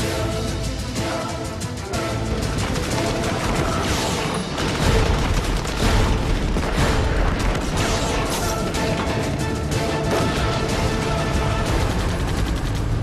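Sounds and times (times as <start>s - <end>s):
background music: 0.0s - 13.0s
rapid gunfire with booms: 2.0s - 13.0s.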